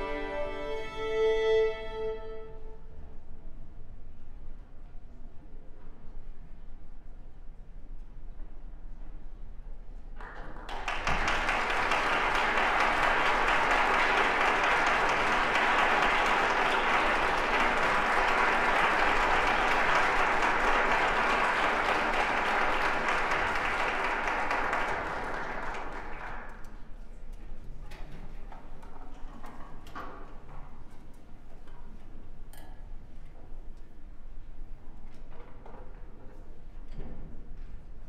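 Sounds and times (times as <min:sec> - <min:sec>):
audience applauding: 0:10.3 - 0:26.6.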